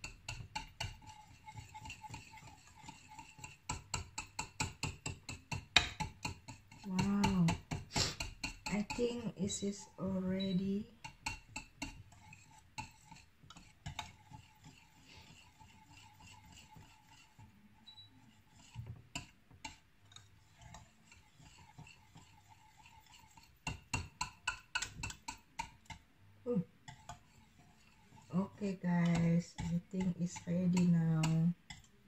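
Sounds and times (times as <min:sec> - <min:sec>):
utensil tapping saucepan: 0:00.0 - 0:17.5, 0:18.5 - 0:32.0.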